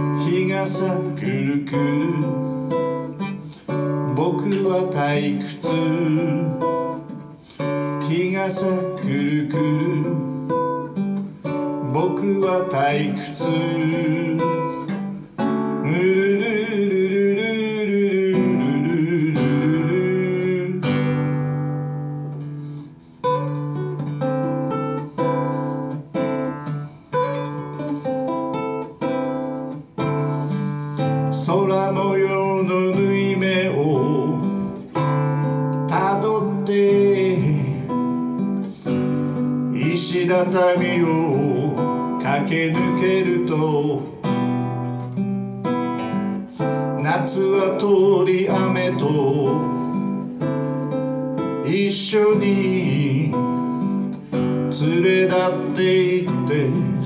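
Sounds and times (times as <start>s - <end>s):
person singing: 0.0s - 24.1s, 25.0s - 45.2s, 45.9s - 57.0s
amplified classical guitar chords: 0.0s - 57.0s.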